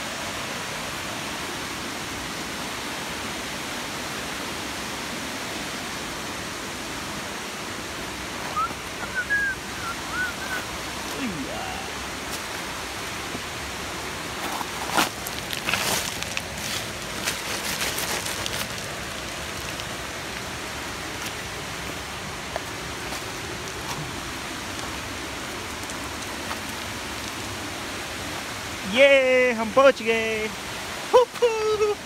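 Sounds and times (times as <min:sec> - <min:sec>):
waterfall rushing: 0:00.0 - 0:32.0
footsteps on gravel: 0:14.4 - 0:19.3.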